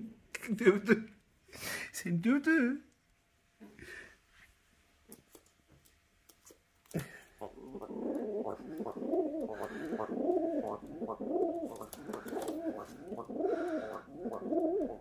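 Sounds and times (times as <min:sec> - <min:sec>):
pigeon cooing: 0:07.0 - 0:15.0.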